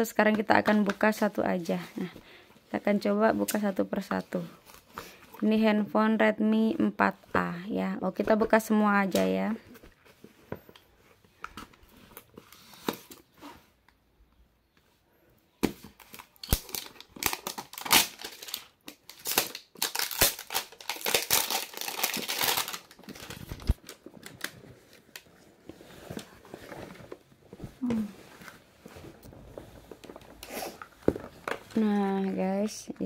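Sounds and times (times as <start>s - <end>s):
plastic wrap crackling: 16.0s - 27.2s.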